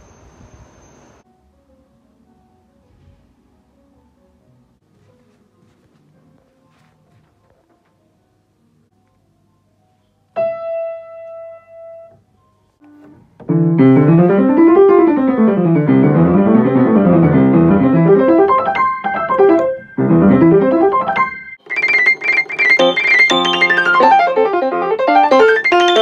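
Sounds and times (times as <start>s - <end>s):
piano arpeggios and chords: 12.9s - 26.0s.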